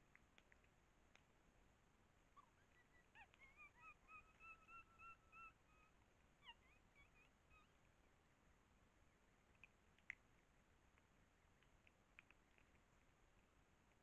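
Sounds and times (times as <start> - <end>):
faint whistled animal calls: 2.4 - 7.9.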